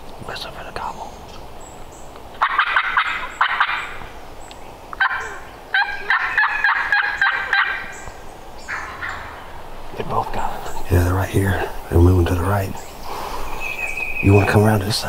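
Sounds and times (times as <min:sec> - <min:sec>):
turkeys gobbling: 0:02.3 - 0:04.3, 0:04.9 - 0:15.0.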